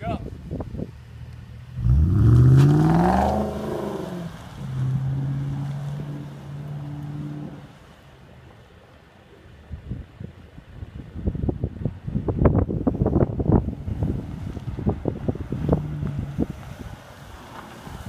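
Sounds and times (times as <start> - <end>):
car engine accelerating: 1.1 - 8.1, 13.8 - 18.0.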